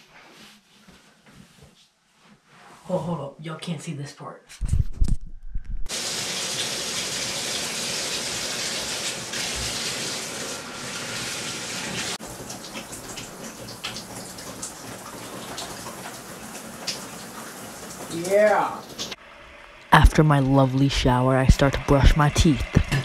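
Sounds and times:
shower water hissing: 5.9 - 23.0.

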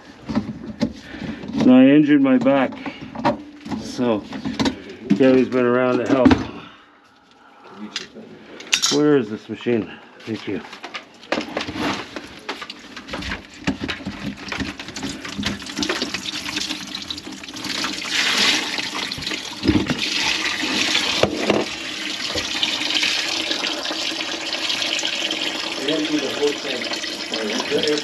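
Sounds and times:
water rushing in kitchen sink: 12.4 - 28.0.

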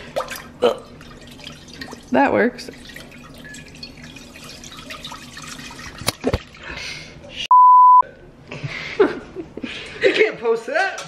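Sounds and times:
censor bleep: 7.5 - 8.0.

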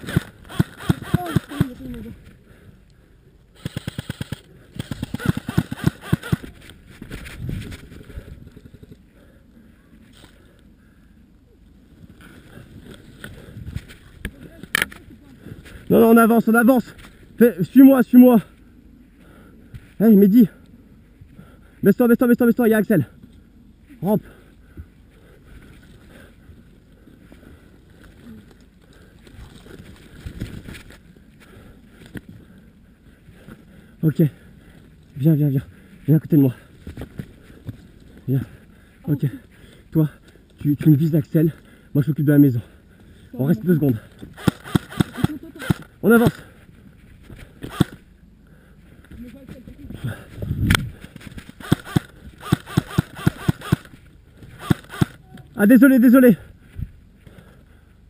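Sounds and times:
airsoft gun firing bursts: 0.0 - 1.8, 3.6 - 6.5, 44.4 - 46.3, 47.7 - 48.0, 51.5 - 53.9, 54.6 - 55.2
rustling through brush: 0.0 - 2.5, 3.5 - 10.7, 11.6 - 16.2, 23.2 - 41.8, 42.6 - 55.6.

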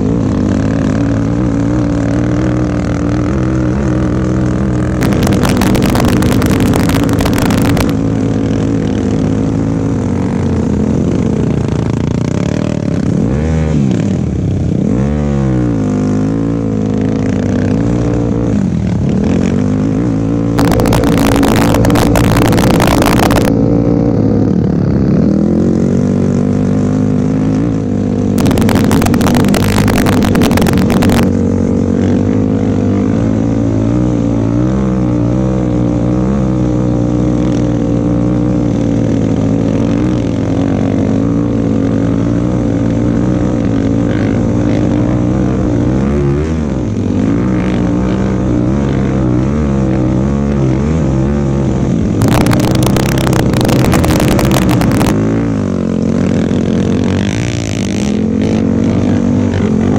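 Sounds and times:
atv engine revving: 0.0 - 59.9
loud rushing noise: 4.8 - 8.3, 20.5 - 23.7, 28.3 - 31.5, 52.0 - 55.3.

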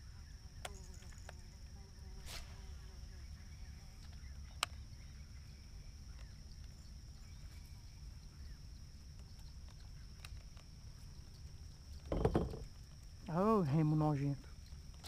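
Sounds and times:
short thump: 12.1 - 12.7.

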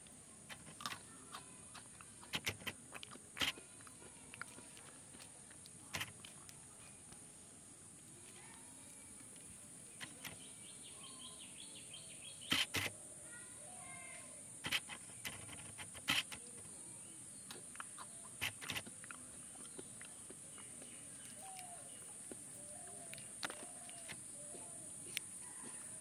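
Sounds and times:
faint bird chirps: 8.4 - 26.0
plastic cup clicking and crinkling: 23.0 - 24.2.

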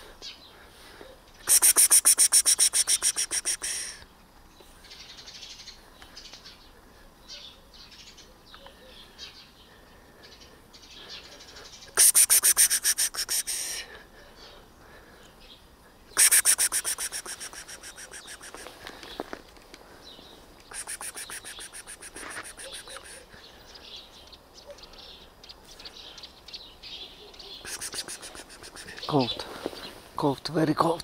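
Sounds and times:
small bird trilling: 16.2 - 18.8, 20.7 - 23.2
faint bird chirps: 20.0 - 30.0.

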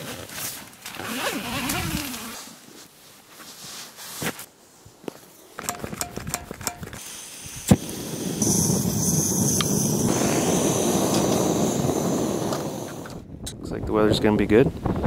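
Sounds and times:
stove burner hissing: 6.9 - 13.3.

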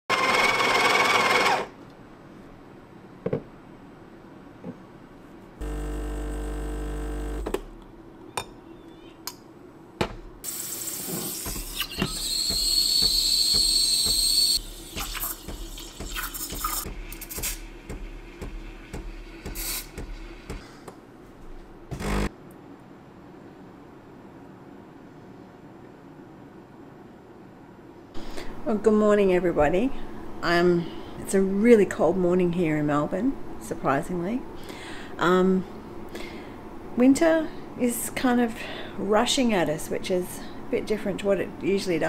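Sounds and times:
espresso machine humming: 5.6 - 7.5, 11.0 - 20.6, 21.9 - 22.3
steam wand hissing: 10.5 - 20.6.

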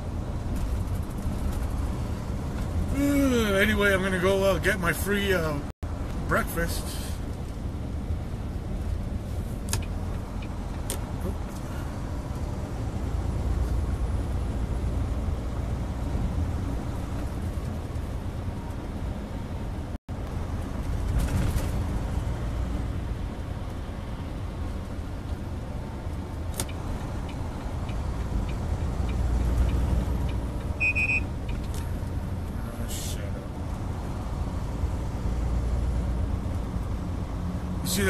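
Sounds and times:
truck engine and road rumble: 0.0 - 38.0
short beep: 30.8 - 31.3.

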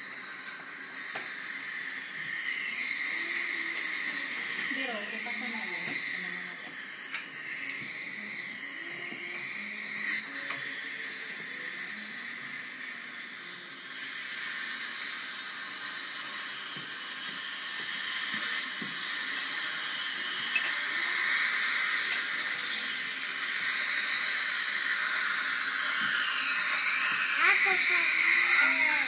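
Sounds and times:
dental drill hissing: 0.0 - 29.0.

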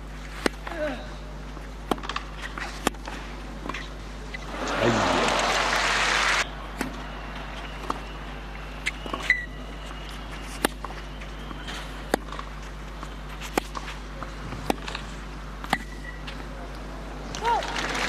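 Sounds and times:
racquet striking tennis ball: 1.8 - 3.8, 10.4 - 11.0, 12.1 - 12.6, 13.4 - 16.2
hush of stadium crowd: 4.4 - 8.8.

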